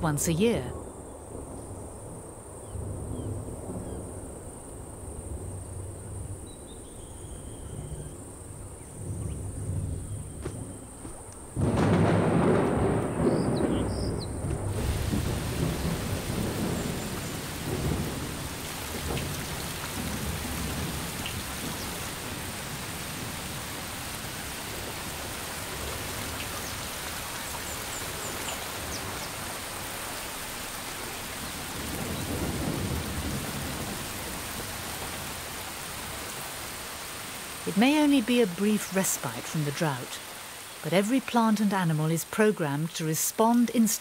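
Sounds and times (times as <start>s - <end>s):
heavy rain on sandy ground: 0.9s - 44.0s
thunder rumbling: 8.2s - 37.0s.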